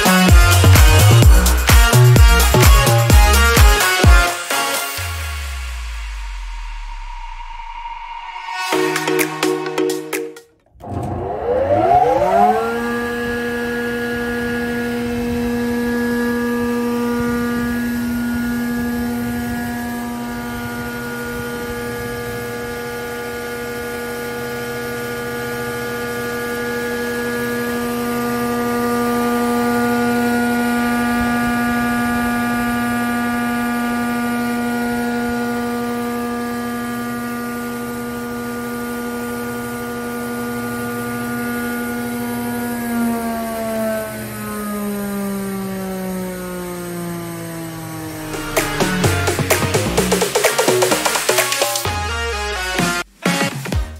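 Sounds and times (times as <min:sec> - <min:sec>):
planer machine humming and whining: 0:10.7 - 0:51.6.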